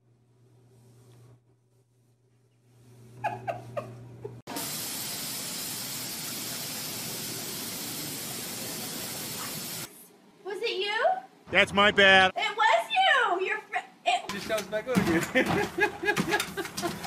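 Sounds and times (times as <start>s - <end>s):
water spraying hiss: 4.5s - 10.0s.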